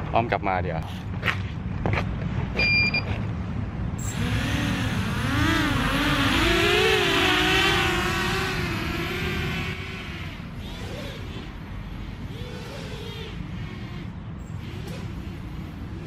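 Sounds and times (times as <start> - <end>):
short electronic beep: 2.6 - 3.1
quadcopter motors whining: 4.0 - 16.0.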